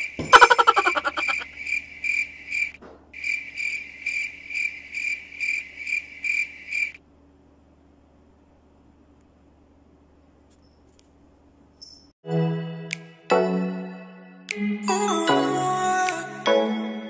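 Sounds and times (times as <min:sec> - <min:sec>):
cricket chirping: 0:00.0 - 0:07.0, 0:11.7 - 0:12.2.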